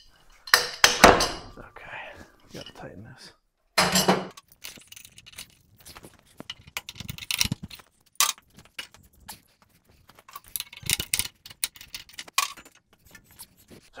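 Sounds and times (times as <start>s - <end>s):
wrench clinking and scraping on nut: 3.8s - 13.9s.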